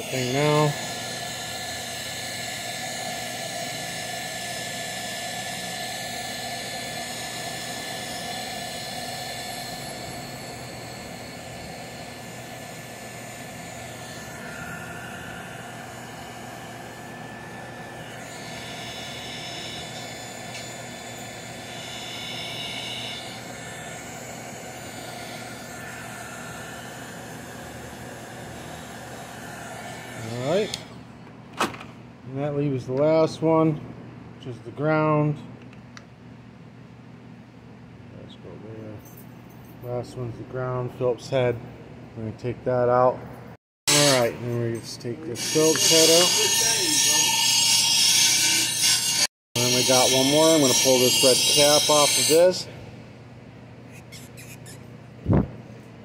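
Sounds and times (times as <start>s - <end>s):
heat gun blowing hot air: 0.0s - 30.9s.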